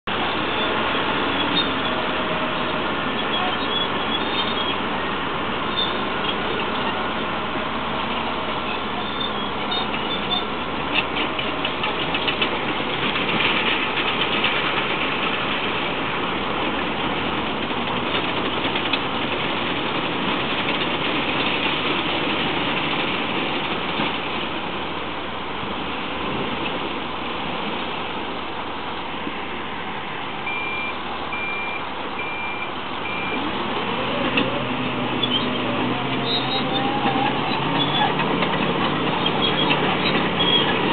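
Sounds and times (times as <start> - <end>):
engine running: 0.1 - 40.9
short high beeps: 30.5 - 33.4.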